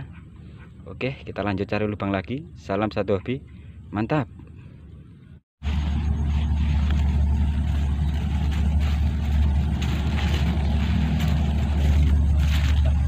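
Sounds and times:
steady low rumble: 4.8s - 13.0s
leaves rustling against phone: 5.6s - 13.0s.

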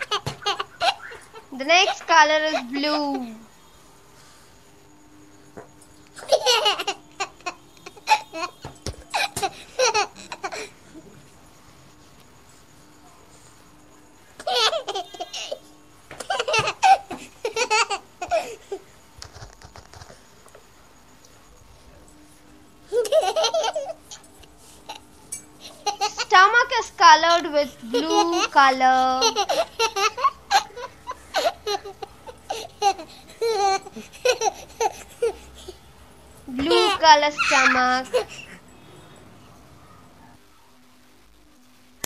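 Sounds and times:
baby laughing and giggling: 0.0s - 3.2s, 6.2s - 10.7s, 14.4s - 15.6s, 16.2s - 18.7s, 22.9s - 24.3s, 24.9s - 26.4s, 27.6s - 35.8s, 36.6s - 38.6s.

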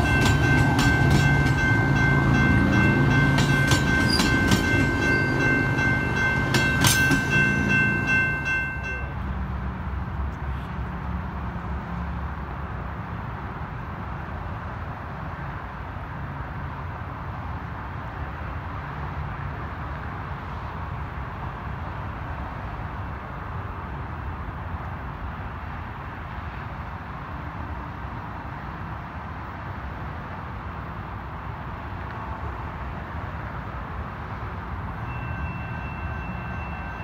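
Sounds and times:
train rumbling past: 0.0s - 13.6s, 31.4s - 37.0s.

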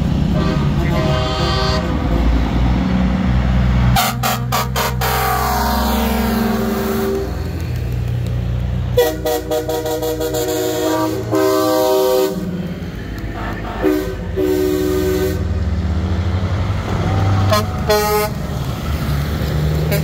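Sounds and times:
truck air horns blowing: 0.3s - 2.8s, 3.9s - 7.4s, 8.9s - 12.6s, 13.3s - 15.6s, 17.4s - 18.4s.

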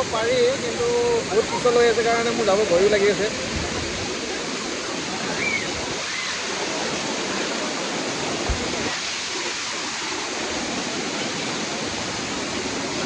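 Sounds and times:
waterfall rushing over rocks: 0.0s - 13.0s
low thump: 8.4s - 8.9s.

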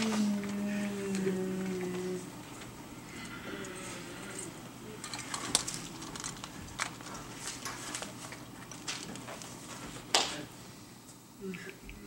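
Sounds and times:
paper rustling: 5.3s - 10.1s.

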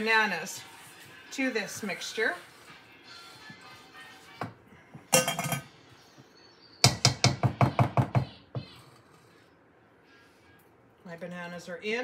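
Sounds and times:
spoon knocking against bowls: 5.0s - 5.8s, 6.8s - 8.7s.

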